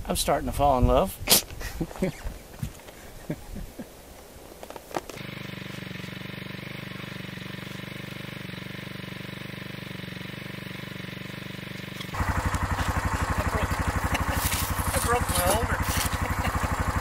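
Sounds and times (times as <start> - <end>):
atv engine idling: 5.2 - 17.0.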